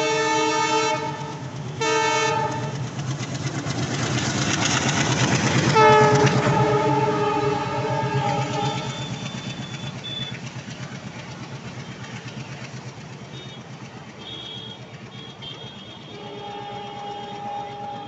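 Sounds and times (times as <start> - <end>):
multi-tone train horn: 0.0 - 2.9, 5.6 - 10.2, 13.3 - 18.0
train wheels rattling on track: 0.0 - 18.0
high wheel squeals: 5.8 - 10.8.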